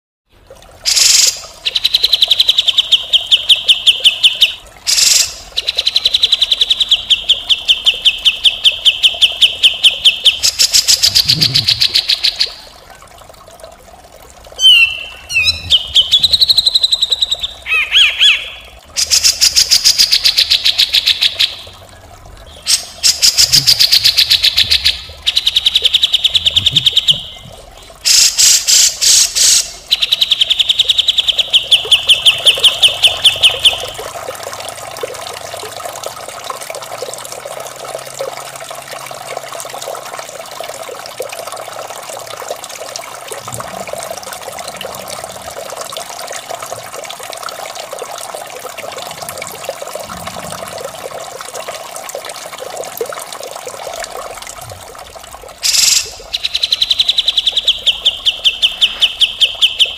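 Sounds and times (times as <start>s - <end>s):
bulbul rapid rattling calls: 0.9s - 12.6s, 22.5s - 34.0s, 55.6s - 59.9s
gliding whistled bird notes: 14.6s - 18.6s.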